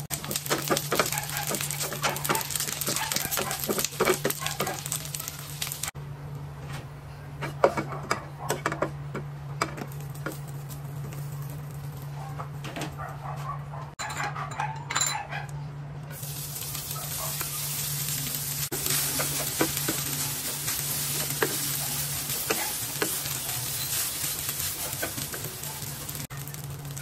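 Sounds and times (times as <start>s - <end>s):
rice sizzling in hot oil: 0.0s - 6.0s, 9.8s - 12.1s, 16.2s - 27.0s
constant low hum: 0.0s - 27.0s
spatula tapping and scraping pan: 0.2s - 4.9s.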